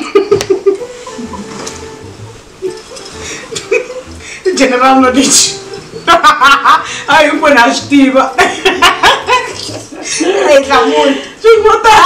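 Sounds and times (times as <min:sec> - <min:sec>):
women laughing: 0:00.0 - 0:00.9, 0:02.6 - 0:04.2, 0:06.0 - 0:07.0, 0:08.3 - 0:11.1.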